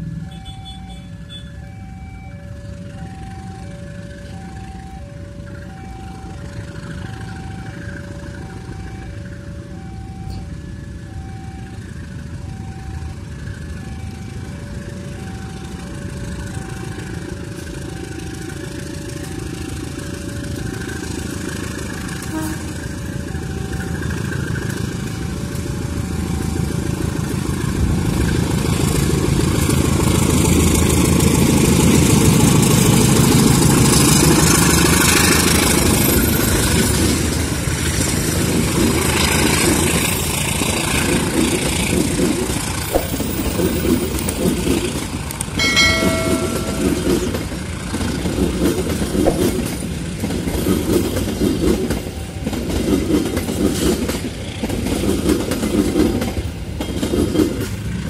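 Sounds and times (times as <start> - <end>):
diesel locomotive engine passing: 0.0 - 58.0
train horn blast: 22.2 - 22.8
train wheels clacking on rails: 26.4 - 58.0.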